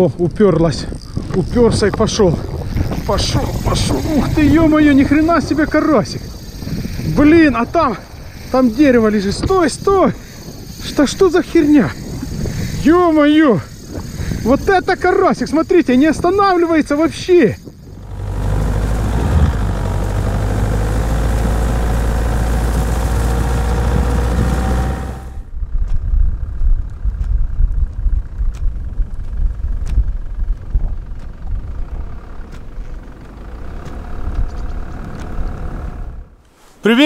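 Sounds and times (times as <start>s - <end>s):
low rumble: 0.2s - 10.8s, 17.6s - 36.4s
vehicle engine running: 1.0s - 36.4s
scattered clicks: 26.8s - 35.4s.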